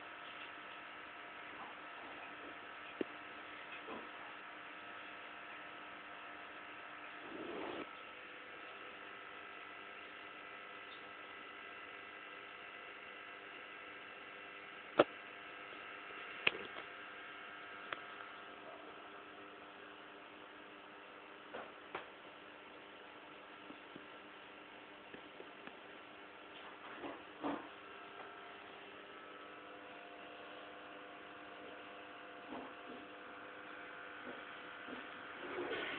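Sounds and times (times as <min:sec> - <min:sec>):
low electrical hum: 0:00.0 - 0:35.9
dog sleep noises: 0:07.1 - 0:08.0.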